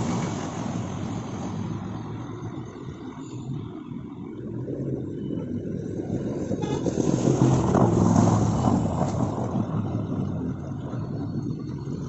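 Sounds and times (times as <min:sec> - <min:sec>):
water rushing and splashing: 0:00.0 - 0:02.2, 0:06.7 - 0:10.5.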